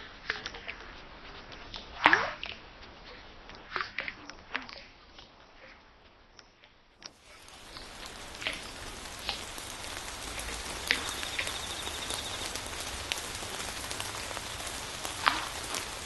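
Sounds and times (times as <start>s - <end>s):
sharp clicks and crackles: 0.2s - 16.0s
rain-like hiss: 7.0s - 16.0s.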